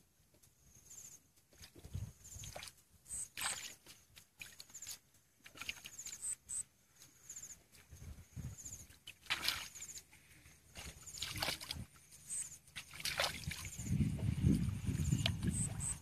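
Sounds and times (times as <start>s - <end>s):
hands splashing in muddy water: 2.4s - 6.3s, 9.0s - 16.0s
faint high chirps: 12.1s - 12.7s, 14.9s - 16.0s.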